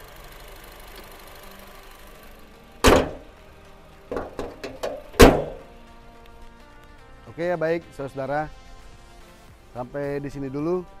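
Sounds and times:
car bonnet slamming shut: 0:02.8 - 0:03.3, 0:04.1 - 0:05.7
light knocks: 0:04.1 - 0:05.6.

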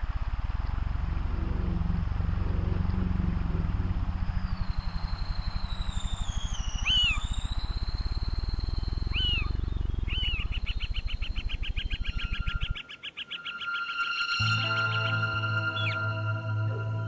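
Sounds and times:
low throbbing: 0:00.0 - 0:12.8
high whistling tones: 0:02.8 - 0:17.0
chirps quickening into trill: 0:04.0 - 0:16.4.

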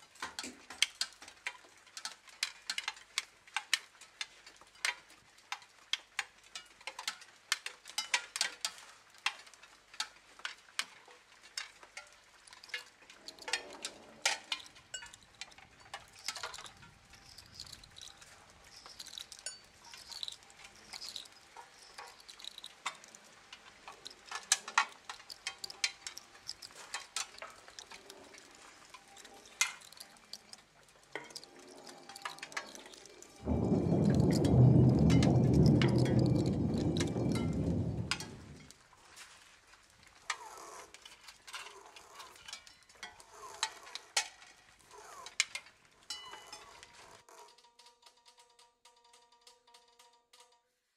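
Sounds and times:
low rumble: 0:33.4 - 0:38.7.

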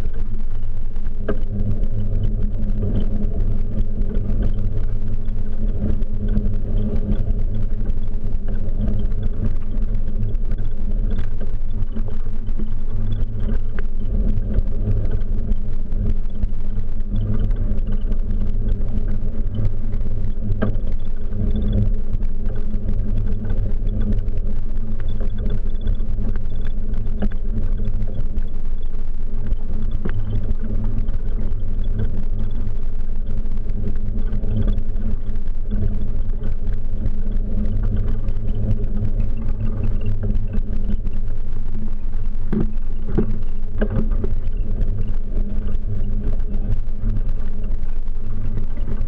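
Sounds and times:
wind rumble: 0:00.0 - 0:49.0.

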